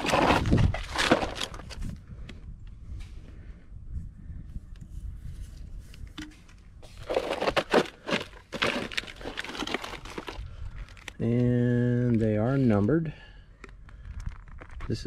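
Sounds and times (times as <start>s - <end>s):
plastic wrap crinkling: 7.0s - 11.2s.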